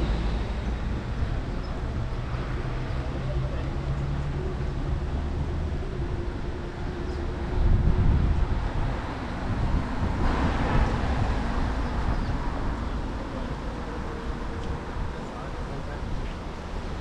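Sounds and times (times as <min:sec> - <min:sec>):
road traffic rumble: 0:00.0 - 0:17.0
wind on microphone: 0:04.6 - 0:17.0.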